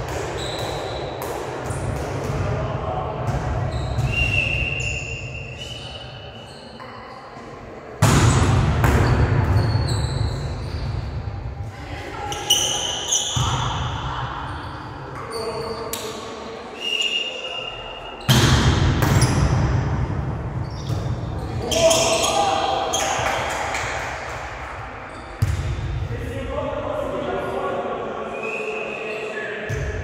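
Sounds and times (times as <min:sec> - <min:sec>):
shoes squeaking on court floor: 0:00.3 - 0:01.1, 0:03.6 - 0:07.5, 0:09.0 - 0:11.1, 0:12.2 - 0:13.8, 0:20.6 - 0:23.2, 0:25.1 - 0:25.6.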